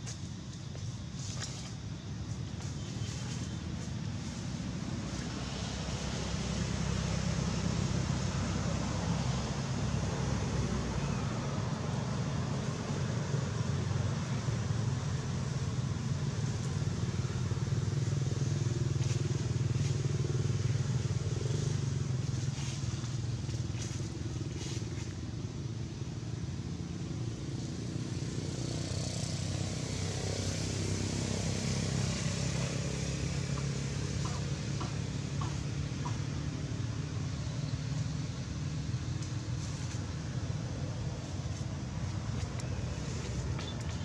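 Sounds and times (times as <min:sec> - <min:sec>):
low engine-like rumble: 0:00.0 - 0:44.0.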